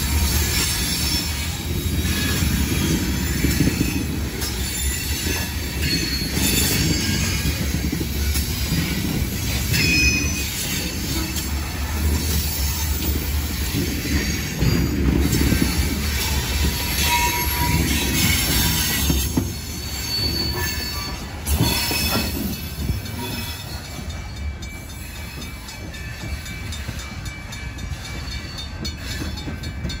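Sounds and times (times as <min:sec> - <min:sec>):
freight train wheels rumbling: 0:00.0 - 0:30.0
high-pitched wheel squeals: 0:12.1 - 0:23.8.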